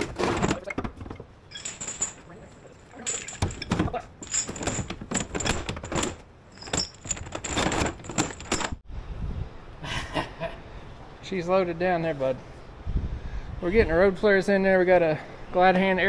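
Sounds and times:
steel chain clanking: 0:01.5 - 0:08.8.

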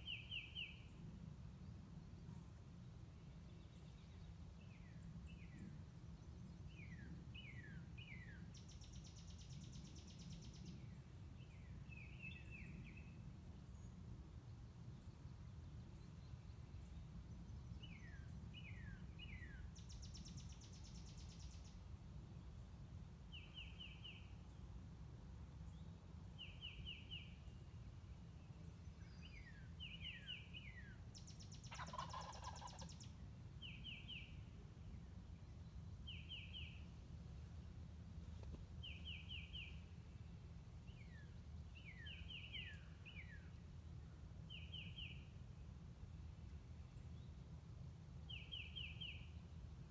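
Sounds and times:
songbirds singing: 0:00.0 - 0:24.8, 0:25.6 - 0:45.5, 0:48.2 - 0:49.9
faint low rumble: 0:00.0 - 0:49.9
turkey gobbling: 0:31.7 - 0:32.9.

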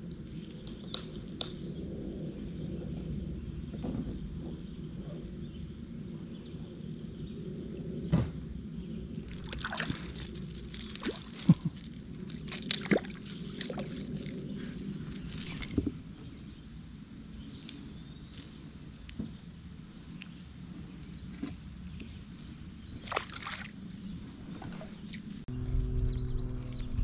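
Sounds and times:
steady low rumble: 0:00.0 - 0:23.0, 0:23.8 - 0:27.0
water splashing and sloshing: 0:09.2 - 0:16.1, 0:23.0 - 0:25.5.

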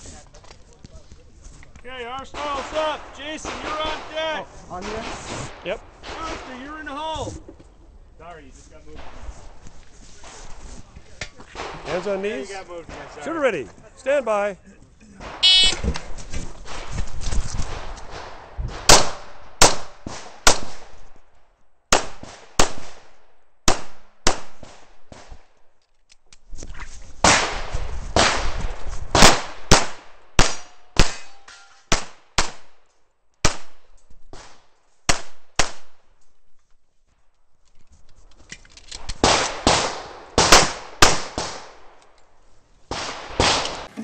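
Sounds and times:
rustle and scuffing of shooter moving: 0:00.0 - 0:05.6, 0:07.1 - 0:11.6, 0:15.7 - 0:18.0, 0:36.0 - 0:39.2
pistol shots: 0:17.7 - 0:21.0, 0:21.9 - 0:25.4, 0:27.3 - 0:32.8, 0:34.4 - 0:36.0, 0:39.1 - 0:42.0.

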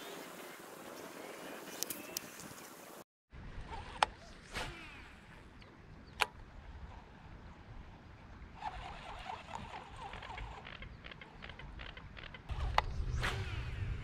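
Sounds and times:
wind rumble on microphone: 0:03.3 - 0:14.0
fishing line whooshing out: 0:03.6 - 0:05.5, 0:12.5 - 0:14.0.

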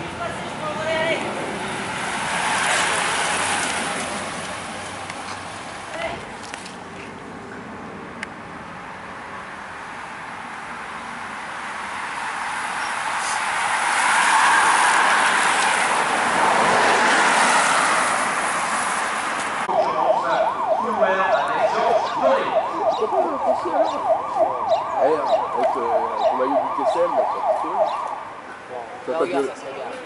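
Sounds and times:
road traffic noise: 0:00.0 - 0:30.0
fast yelp siren: 0:12.3 - 0:15.9, 0:19.7 - 0:28.5.

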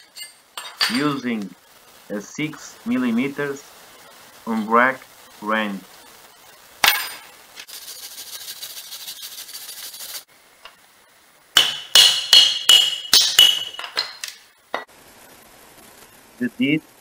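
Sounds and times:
steady hiss: 0:00.0 - 0:17.0
hammer striking metal brake disc: 0:11.6 - 0:14.2.

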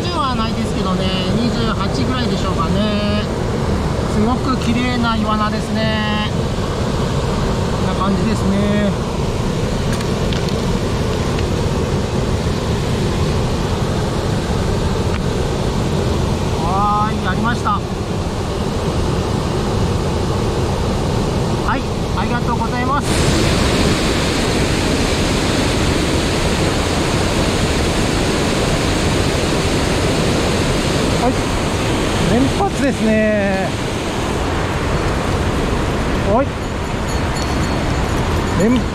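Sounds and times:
stream rushing over rocks: 0:00.0 - 0:38.9.

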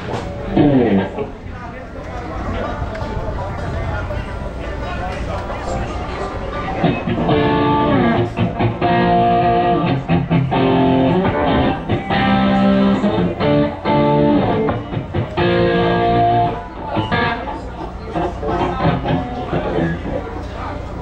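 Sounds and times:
guitar strumming chords: 0:06.8 - 0:20.4.

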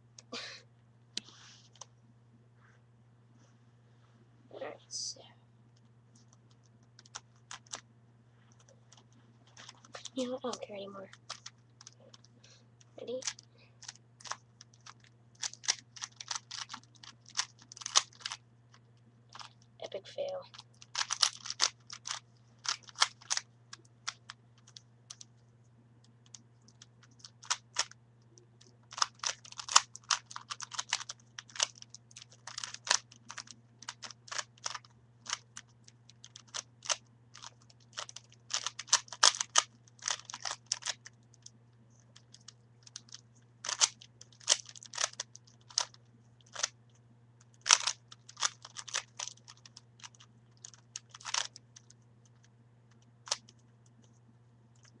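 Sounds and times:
puzzle cube layers clicking: 0:28.9 - 0:35.7, 0:37.4 - 0:41.1, 0:42.3 - 0:45.9, 0:47.6 - 0:52.0.

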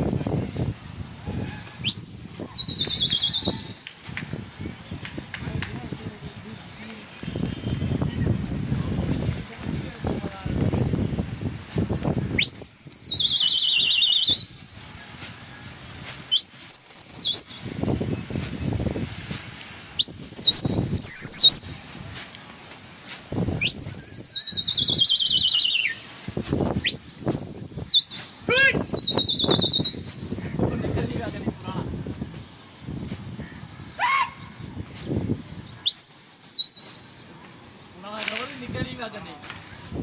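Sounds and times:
person whistling shrilly: 0:01.4 - 0:04.3, 0:12.4 - 0:15.0, 0:16.3 - 0:17.6, 0:20.0 - 0:21.8, 0:23.6 - 0:26.0, 0:26.8 - 0:30.4, 0:35.8 - 0:37.1
rising chirps: 0:20.0 - 0:21.8, 0:23.6 - 0:26.1.

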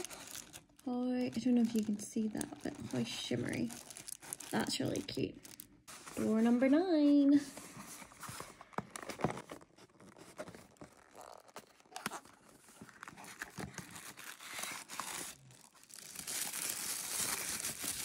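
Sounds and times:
tissue paper crinkling: 0:00.0 - 0:18.0
cardboard box being opened: 0:07.5 - 0:18.0
card tearing: 0:13.2 - 0:18.0.

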